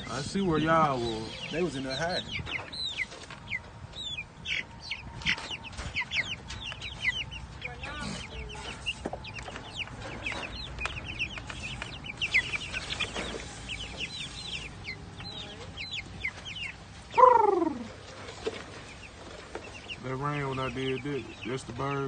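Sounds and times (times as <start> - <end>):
chicks peeping: 0.0 - 22.0
long falling chick call: 10.5 - 18.0.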